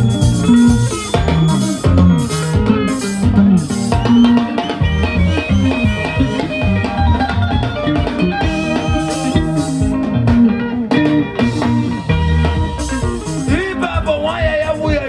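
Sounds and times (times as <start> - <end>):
electric bass guitar: 0.0 - 15.0
live band playing: 0.0 - 15.0.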